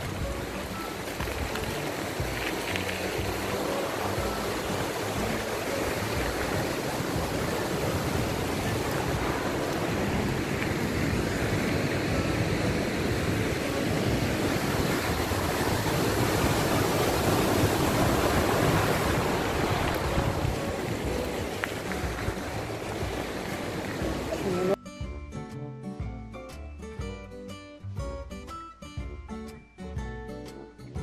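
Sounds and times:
river rushing over rapids: 0.0s - 24.8s.

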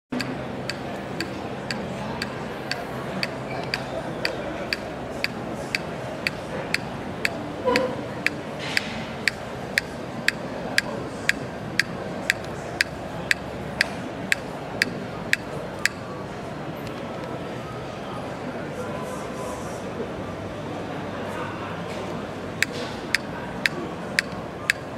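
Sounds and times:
murmur of voices: 0.1s - 24.9s
sharp dry clicks: 0.2s - 16.0s, 22.6s - 24.9s.

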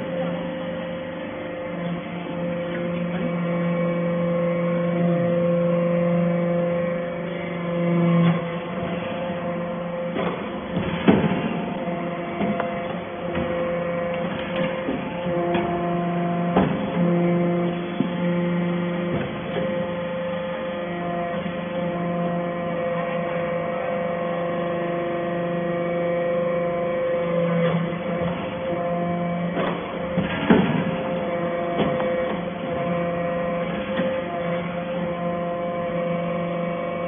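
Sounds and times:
hydraulic power unit hum: 0.0s - 37.0s
low machine tone: 0.0s - 37.0s
press knocks and clanks: 10.1s - 18.2s.

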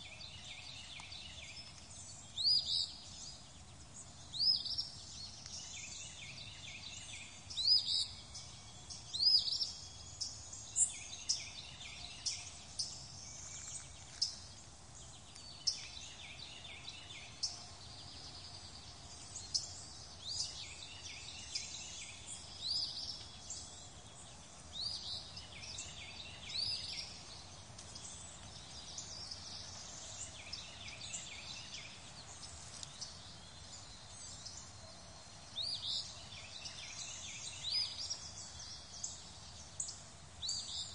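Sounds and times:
birds chirping and singing: 0.0s - 40.9s
faint outdoor hiss: 0.0s - 40.9s.

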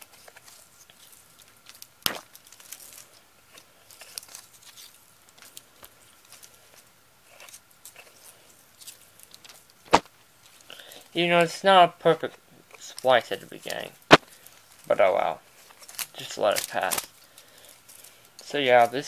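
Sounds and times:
plastic tape reel clicks and crinkles: 15.7s - 19.0s.

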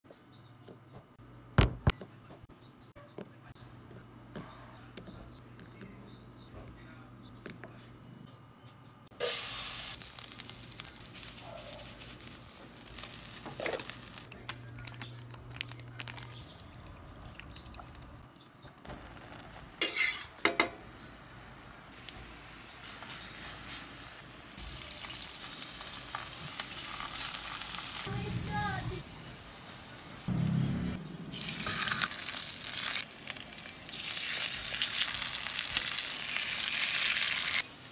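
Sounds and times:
meat sizzling in a frying pan: 9.2s - 14.3s, 22.5s - 28.2s, 31.3s - 37.7s.

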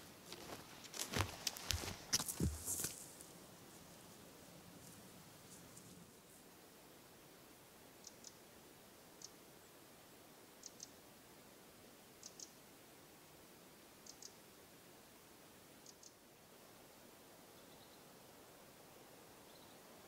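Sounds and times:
faint forest ambience: 0.0s - 20.0s
small bird chirping: 8.0s - 8.4s, 10.6s - 11.0s, 12.2s - 12.6s, 14.0s - 14.4s, 15.8s - 16.2s.

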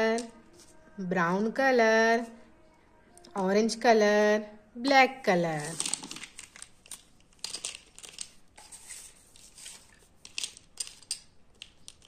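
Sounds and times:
marker pens clicking together: 10.3s - 12.0s.

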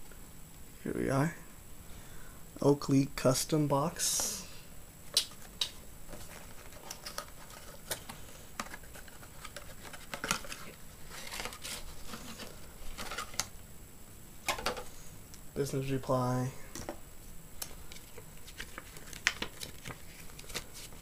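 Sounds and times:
cardboard box handling rustles: 6.1s - 13.4s.

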